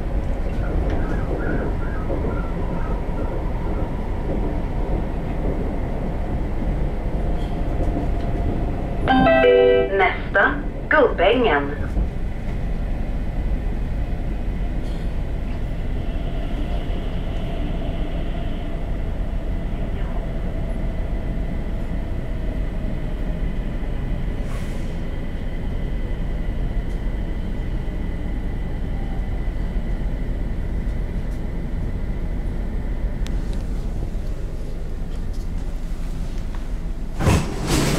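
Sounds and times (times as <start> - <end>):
metro train rumble: 0.0 - 37.9.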